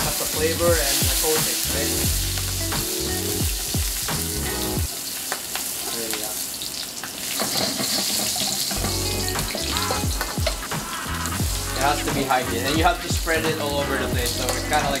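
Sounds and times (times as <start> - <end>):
oil sizzling in a wok: 0.0 - 15.0
chopsticks stirring in a wok: 7.3 - 12.8.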